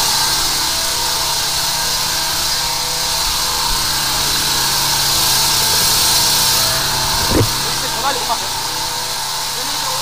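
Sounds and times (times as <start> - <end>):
short thump: 7.2 - 7.7.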